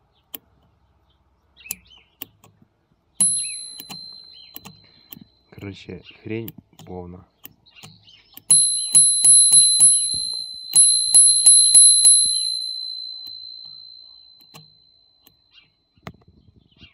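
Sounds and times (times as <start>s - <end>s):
metallic striker click: 1.6s - 2.6s, 3.2s - 15.4s
bicycle bell dings: 3.2s - 5.6s, 8.5s - 15.6s.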